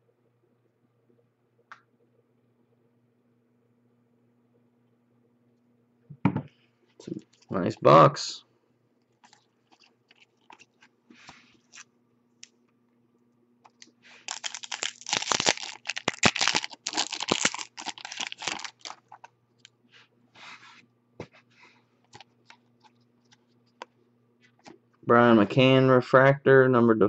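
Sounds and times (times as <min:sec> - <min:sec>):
foil wrapper tearing and crinkling: 0:09.2 - 0:10.9, 0:13.7 - 0:19.3.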